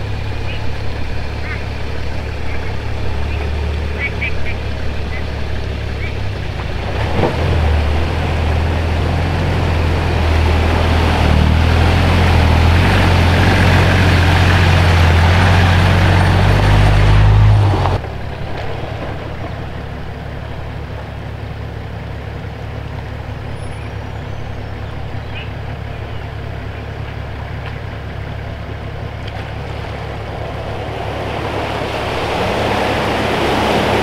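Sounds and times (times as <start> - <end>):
road noise: 0.0 - 34.0
vehicle engine droning: 0.0 - 34.0.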